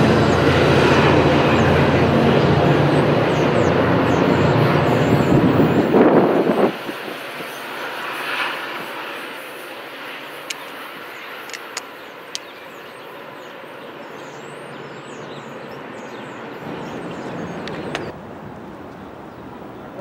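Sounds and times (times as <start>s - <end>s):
train rumbling past: 0.0s - 10.4s
sharp clicks: 11.4s - 12.5s.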